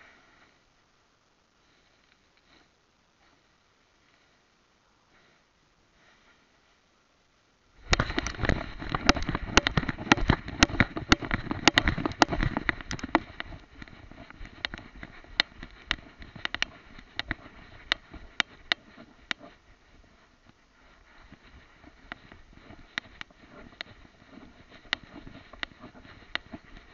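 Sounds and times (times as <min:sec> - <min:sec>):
camera rubbing and clicking: 0:07.8 - 0:26.9.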